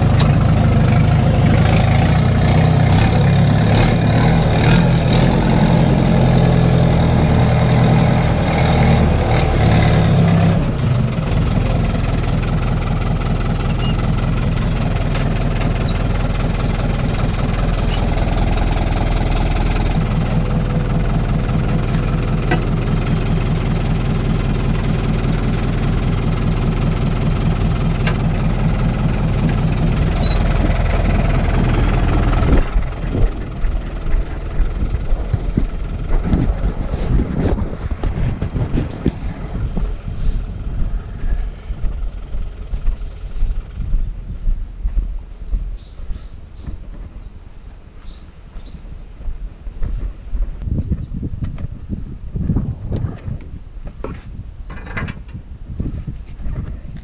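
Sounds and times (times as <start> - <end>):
tractor diesel engine running: 0.0 - 54.0.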